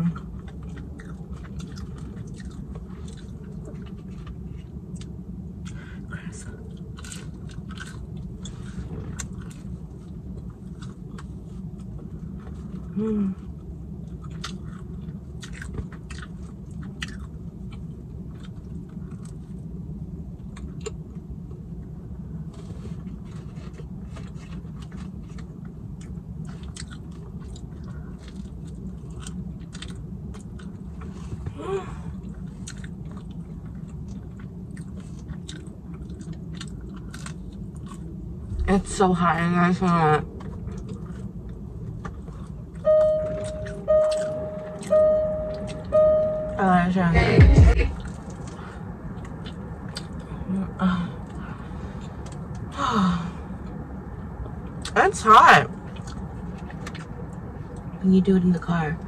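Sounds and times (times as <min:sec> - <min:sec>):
chewing and biting food: 0:00.0 - 0:31.5, 0:32.1 - 0:38.6, 0:40.2 - 0:42.8, 0:48.0 - 0:50.3, 0:55.8 - 0:57.9
low hum: 0:00.0 - 0:54.9
brief pitched sound: 0:42.9 - 0:48.0.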